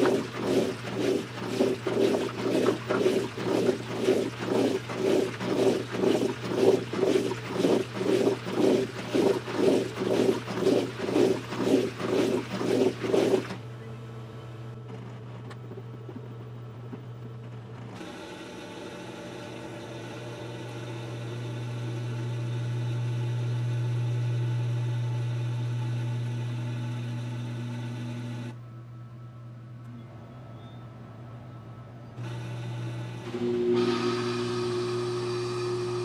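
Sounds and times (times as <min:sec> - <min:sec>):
rushing water: 0:00.0 - 0:13.6
washing machine motor hum: 0:00.0 - 0:36.0.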